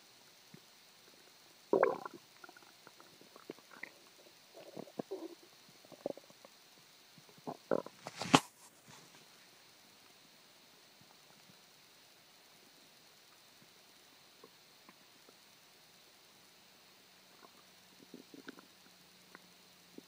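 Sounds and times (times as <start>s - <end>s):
stomach gurgling and rumbling: 1.7s - 8.4s, 17.2s - 19.0s
sharp crackle: 7.7s - 9.3s.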